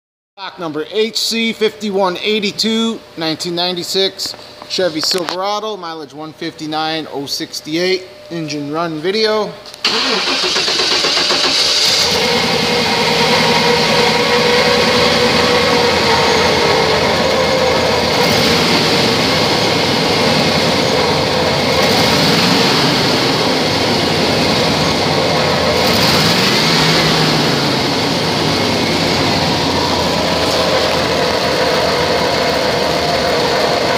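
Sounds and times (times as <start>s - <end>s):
engine running steadily: 9.8s - 33.9s.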